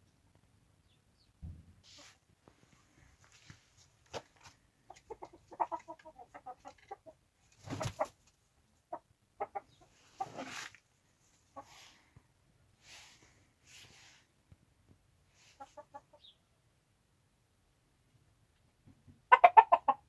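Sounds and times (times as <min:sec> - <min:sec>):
chickens clucking: 0:04.1 - 0:12.0, 0:15.3 - 0:16.4, 0:19.2 - 0:20.0
scratchy rustles: 0:10.1 - 0:10.8.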